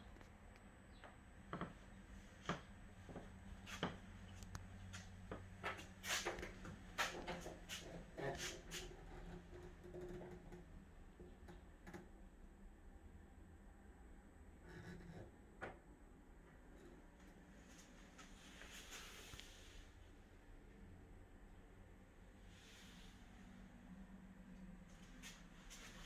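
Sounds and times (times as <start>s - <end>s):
low steady hum: 0.0s - 26.0s
faint taps and knocks: 1.0s - 12.2s.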